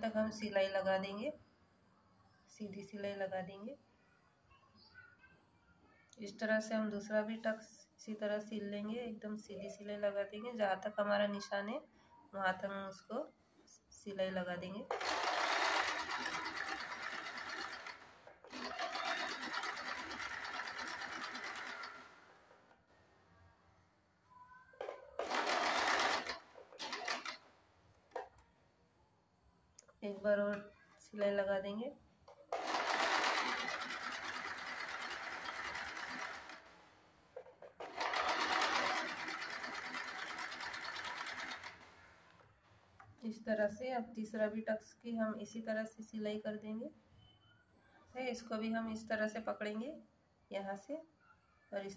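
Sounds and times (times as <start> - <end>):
sewing machine rattling: 14.9 - 22.6, 24.8 - 27.5, 32.5 - 42.2.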